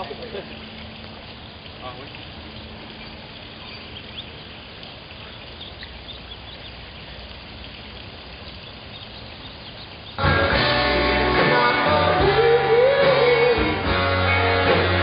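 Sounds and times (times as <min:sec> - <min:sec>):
bird chirps: 0:02.5 - 0:06.8, 0:08.4 - 0:10.2.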